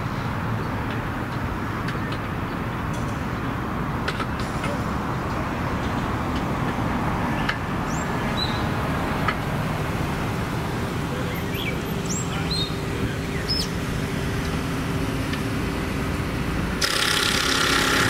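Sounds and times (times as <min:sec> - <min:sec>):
bird chirps: 0:07.9 - 0:08.7, 0:11.3 - 0:13.8.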